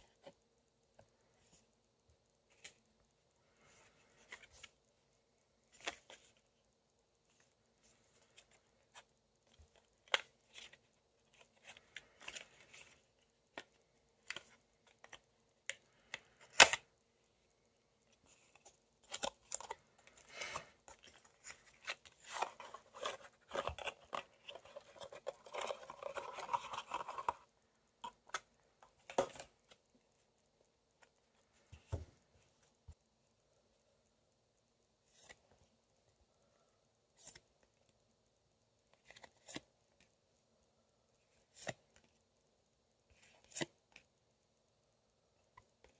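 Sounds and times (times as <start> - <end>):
cardboard rustling and scraping: 18.3 - 27.5.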